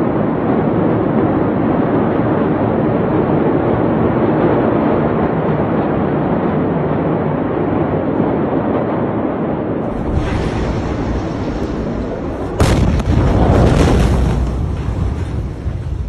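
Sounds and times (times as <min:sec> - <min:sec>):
deep rumble and hiss: 0:00.0 - 0:16.0
loud rumbling roar: 0:09.8 - 0:16.0.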